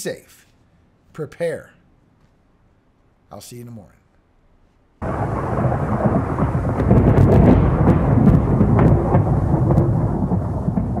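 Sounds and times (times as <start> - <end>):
rumble of thunder: 5.0 - 11.0
thunder crackles: 5.0 - 11.0.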